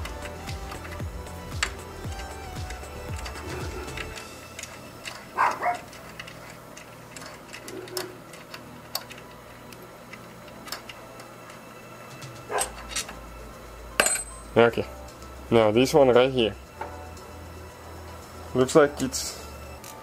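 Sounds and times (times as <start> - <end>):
tools clicking on engine parts: 0.0 - 13.2.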